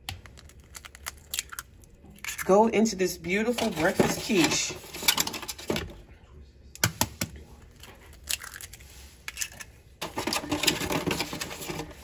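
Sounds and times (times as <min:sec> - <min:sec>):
eggshells cracking: 0:00.0 - 0:02.5, 0:07.7 - 0:09.7
eggshell crackling pulled apart: 0:00.1 - 0:02.5, 0:08.1 - 0:09.7.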